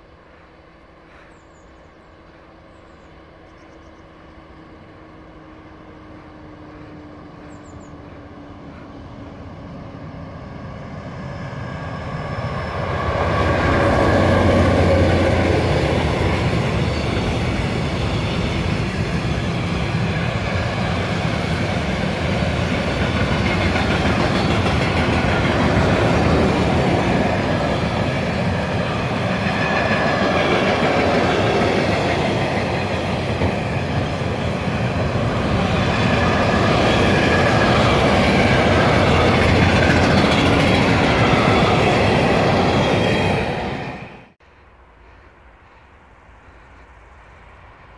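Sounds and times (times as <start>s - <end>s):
diesel locomotive engine hum: 0.0s - 47.9s
freight wagon wheels clacking on rails: 14.6s - 43.1s.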